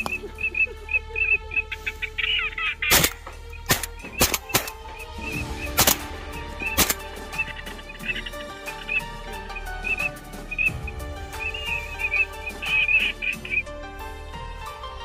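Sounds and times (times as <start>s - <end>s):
high repeated chirping calls: 0.0s - 13.7s
background music: 0.0s - 15.0s
shotgun shots: 2.9s - 4.9s, 5.6s - 7.1s.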